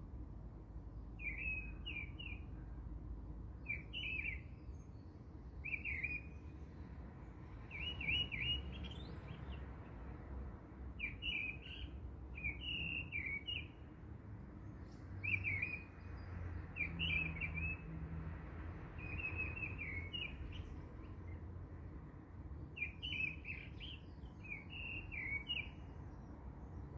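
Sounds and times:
small bird chirping: 3.7 - 6.6, 7.6 - 9.6, 11.0 - 13.8, 22.8 - 25.9.

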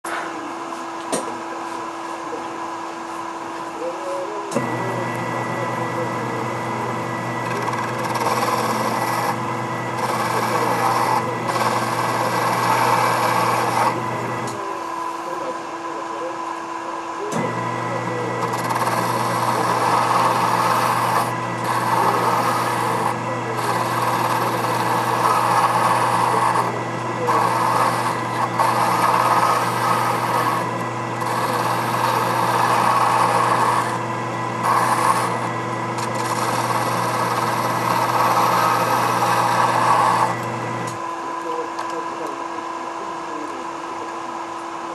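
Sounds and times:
lathe motor humming: 0.1 - 44.9
graver scraping metal on lathe: 4.6 - 15.9, 17.3 - 41.1.

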